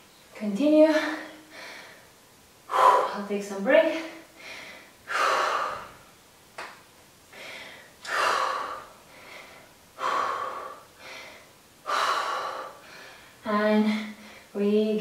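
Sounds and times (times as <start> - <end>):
woman breathing hard: 1.2 - 3.2, 4.3 - 6.1, 7.3 - 14.6.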